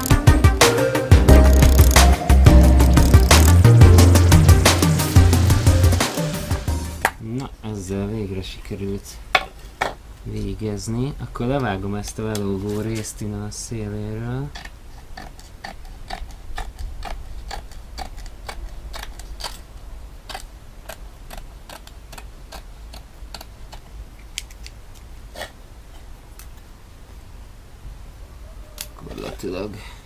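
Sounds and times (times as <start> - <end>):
scissors snipping mesh: 1.3 - 4.1.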